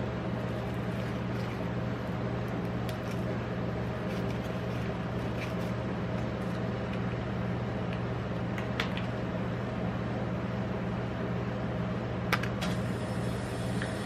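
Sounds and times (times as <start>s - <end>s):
low electric machine hum: 0.0s - 14.0s
foil crinkling: 0.4s - 6.6s.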